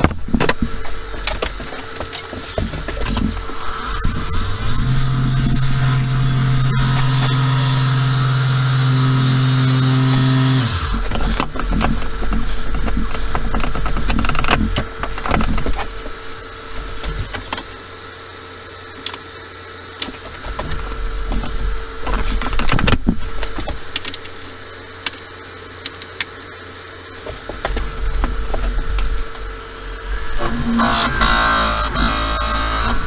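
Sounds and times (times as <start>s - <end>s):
wood lathe humming: 3.4s - 14.5s, 27.6s - 33.0s.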